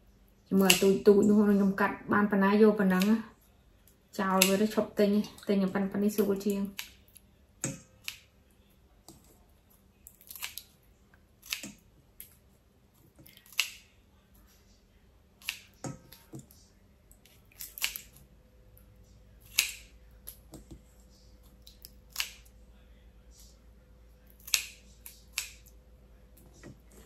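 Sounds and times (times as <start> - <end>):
scissors snipping shrimp: 4.3 - 4.8, 24.3 - 25.7.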